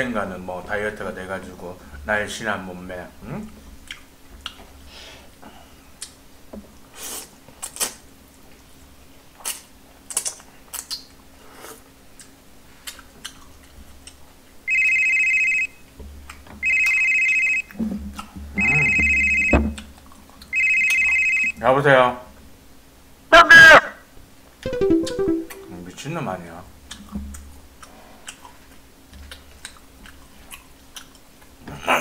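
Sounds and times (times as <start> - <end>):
chewing and smacking noodles: 11.8 - 14.2, 26.9 - 31.6
electronic telephone ringing: 14.7 - 15.7, 16.6 - 17.6, 18.6 - 19.6, 20.5 - 21.6.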